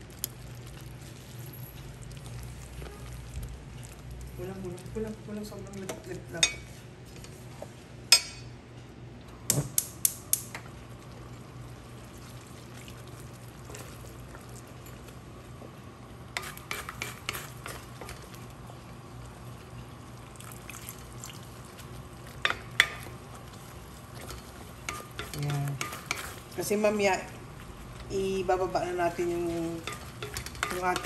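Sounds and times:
steady low hum: 0:00.0 - 0:31.0
wooden spatula stirring thick sauce: 0:21.5 - 0:31.0.

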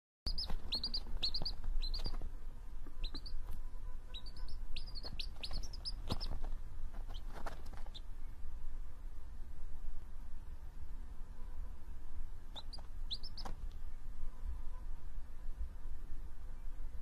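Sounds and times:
chick peeping: 0:00.3 - 0:02.3, 0:02.9 - 0:08.1, 0:12.5 - 0:13.7.

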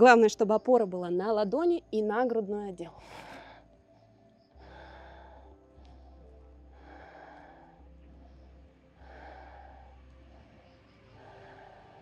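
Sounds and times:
woman breathing slowly: 0:03.0 - 0:12.0.

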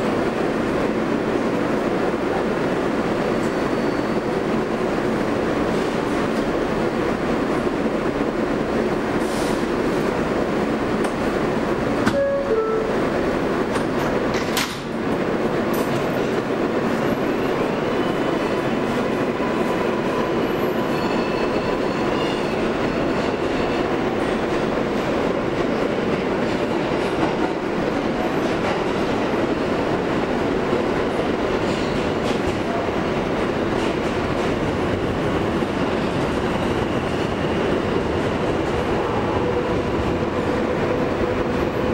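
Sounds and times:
train running noise: 0:00.0 - 0:41.9
wheels clacking on rails: 0:09.5 - 0:41.9.

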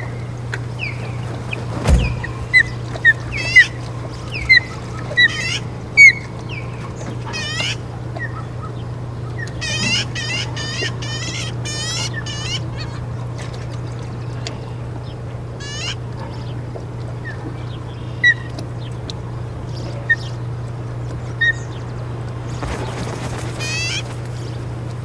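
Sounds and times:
steady low hum: 0:00.0 - 0:25.0
bird landing thump: 0:01.7 - 0:03.1.

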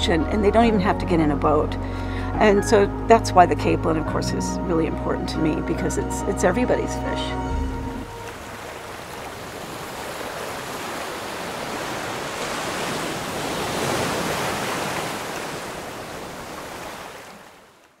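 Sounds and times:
sea surf breaking on rocks: 0:08.1 - 0:17.6.

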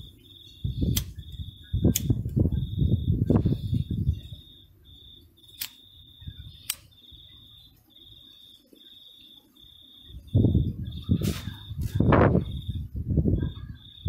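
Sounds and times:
cricket chirping: 0:00.0 - 0:14.0
wind buffeting microphone: 0:00.5 - 0:04.4, 0:10.1 - 0:14.0
sharp clicks: 0:00.9 - 0:02.4, 0:05.5 - 0:05.9, 0:06.6 - 0:07.0.

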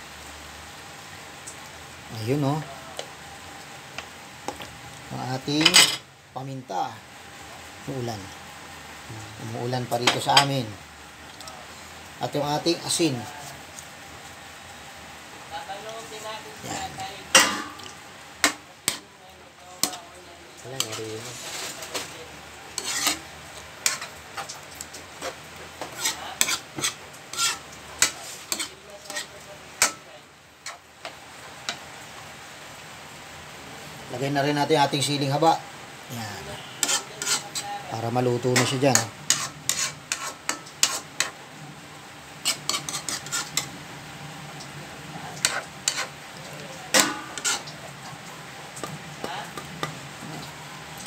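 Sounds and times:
steady hiss: 0:00.0 - 0:51.0
metal spoon scraping wok: 0:16.7 - 0:19.1, 0:20.7 - 0:22.2, 0:22.8 - 0:24.5, 0:25.2 - 0:30.0, 0:36.4 - 0:37.8, 0:38.4 - 0:41.4, 0:42.4 - 0:43.7, 0:45.3 - 0:46.2, 0:46.8 - 0:47.9.

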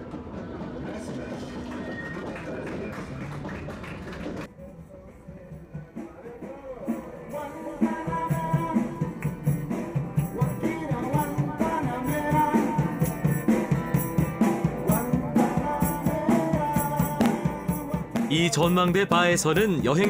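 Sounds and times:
men singing: 0:06.4 - 0:09.4, 0:10.2 - 0:13.2, 0:14.7 - 0:20.0
strummed guitar: 0:07.2 - 0:20.0
shaken rattle percussion: 0:09.4 - 0:20.0.

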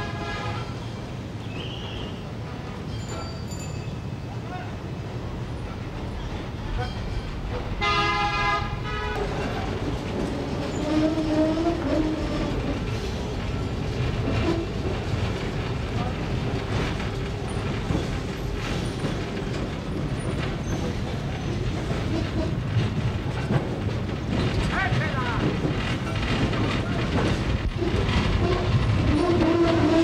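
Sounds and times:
tram rumbling on rails: 0:00.0 - 0:30.0
horn honking: 0:07.8 - 0:09.2
steel wheels clattering on track: 0:09.2 - 0:30.0.

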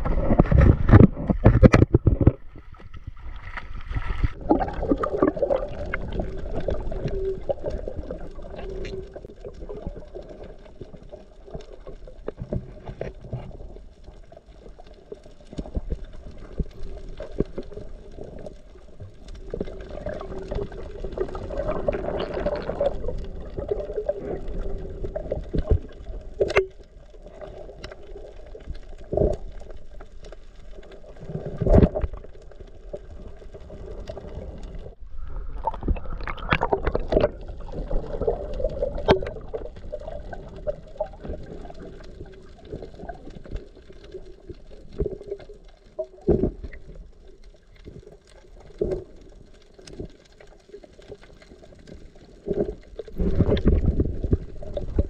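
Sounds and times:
underwater bubbling water: 0:00.0 - 0:55.0
low underwater drone: 0:32.5 - 0:39.8.

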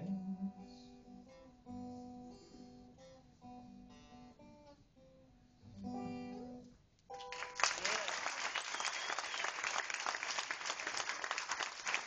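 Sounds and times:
acoustic guitar chords: 0:00.0 - 0:07.6
applause: 0:07.2 - 0:12.0.

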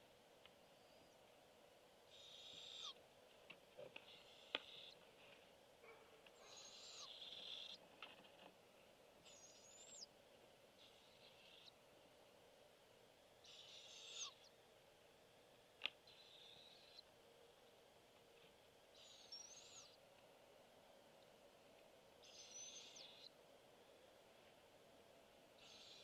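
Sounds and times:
owlets raspy begging calls: 0:02.1 - 0:03.0, 0:06.4 - 0:07.8, 0:10.8 - 0:11.8, 0:13.4 - 0:14.5, 0:19.0 - 0:20.0, 0:22.2 - 0:23.3, 0:25.6 - 0:26.0.

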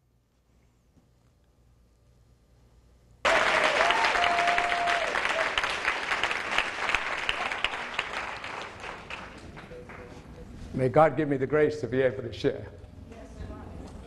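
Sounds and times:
audience applause: 0:03.3 - 0:10.2.

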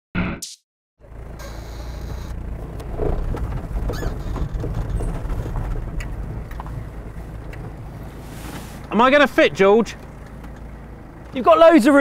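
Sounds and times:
van engine rumbling: 0:01.0 - 0:12.0
stones clicking under tyres: 0:02.3 - 0:08.1, 0:09.9 - 0:11.4.

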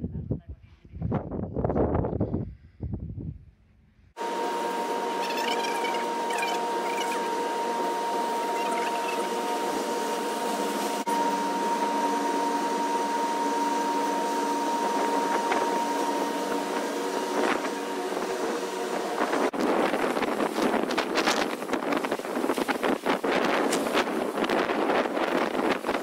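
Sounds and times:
ship machinery whirring drone: 0:04.2 - 0:26.0.

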